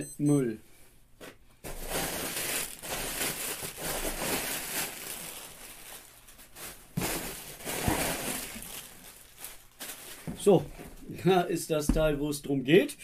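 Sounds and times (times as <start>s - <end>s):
packing material rustling and crinkling: 1.6s - 11.3s.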